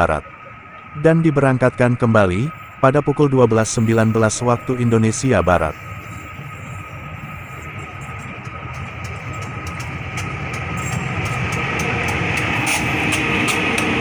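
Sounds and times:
diesel locomotive engine rumble: 0.0s - 14.0s
train wheels clicking on rails: 3.6s - 14.0s.

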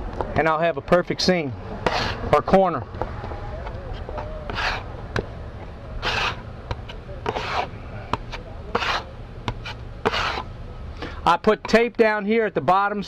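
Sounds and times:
putty knife scraping filler: 1.8s - 2.3s, 4.5s - 4.9s, 6.0s - 10.5s.

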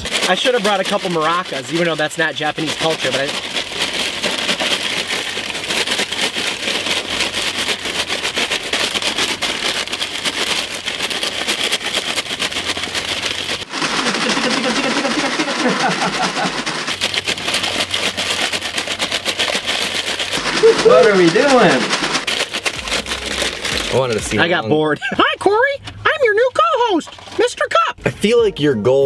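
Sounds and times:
fries rattling in paper bag: 0.0s - 27.9s
pitched sound: 20.2s - 25.6s.

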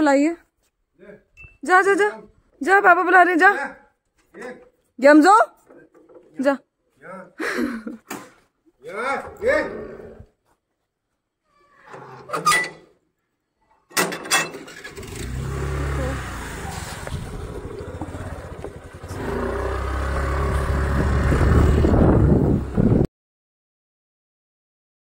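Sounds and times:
road and wind noise: 14.7s - 23.1s
vehicle engine rumble: 14.7s - 23.1s.

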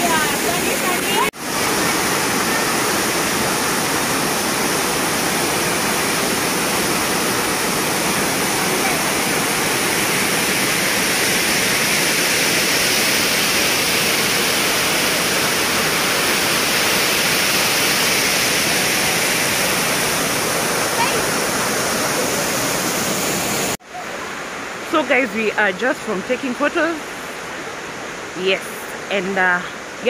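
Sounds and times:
waterfall splashing over rocks: 0.0s - 30.0s.

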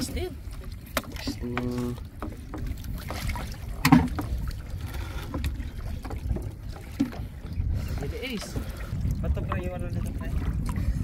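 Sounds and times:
sea water sloshing: 0.0s - 11.0s
wind buffeting microphone: 0.0s - 11.0s
knock or splash: 2.6s - 4.4s.

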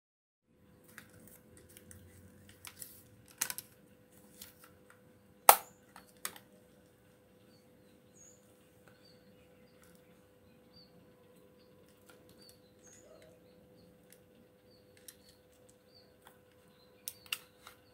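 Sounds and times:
plastic and metal gun parts clicking: 2.5s - 3.8s
loud sharp click: 5.5s - 5.8s
faint bird chirps: 6.0s - 17.9s.

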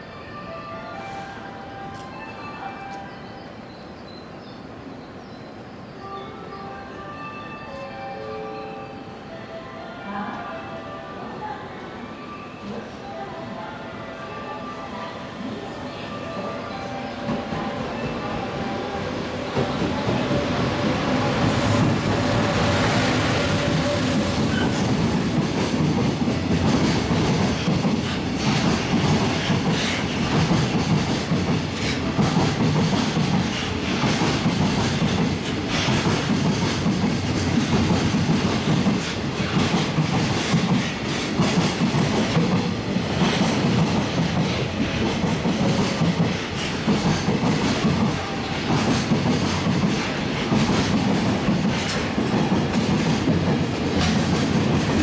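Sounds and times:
electric locomotive passing: 0.0s - 55.0s
train wheels clacking over rail joints: 19.5s - 55.0s.

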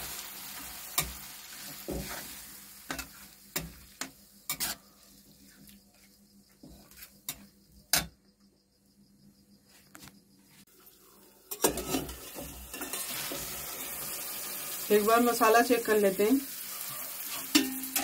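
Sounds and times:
masala sizzling: 0.0s - 8.1s, 10.6s - 18.0s
metal spatula clinking on pan: 17.3s - 18.0s.

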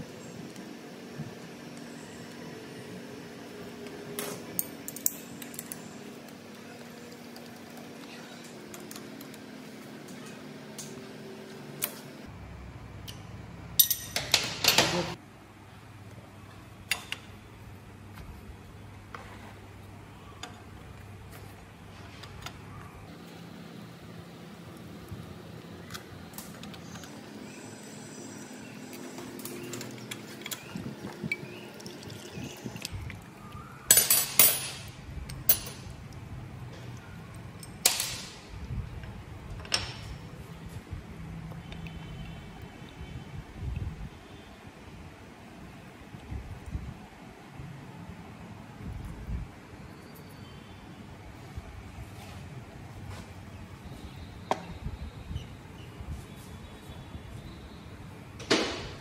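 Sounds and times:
steel tools clanking on metal: 33.9s - 35.9s.

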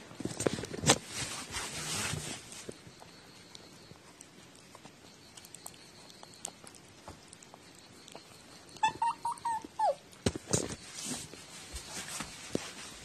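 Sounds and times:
cat chirping meows: 8.8s - 10.0s.

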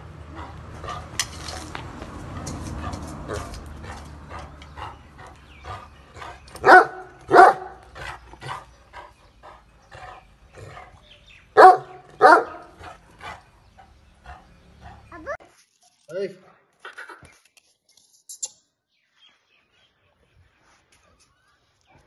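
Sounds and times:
dog barking: 6.6s - 7.8s, 11.6s - 12.8s.

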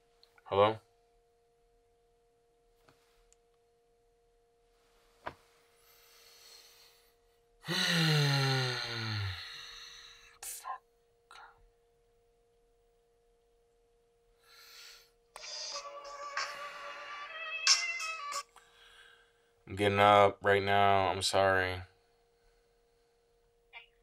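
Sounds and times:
man groaning sigh: 7.6s - 9.8s
man drawing a breath: 14.4s - 15.1s, 18.6s - 19.5s.

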